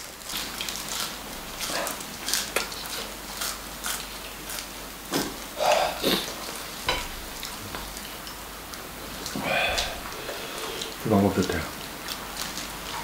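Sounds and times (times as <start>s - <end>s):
wet chewing and mouth smacking: 0.3s - 6.7s, 7.3s - 11.0s, 11.7s - 13.0s.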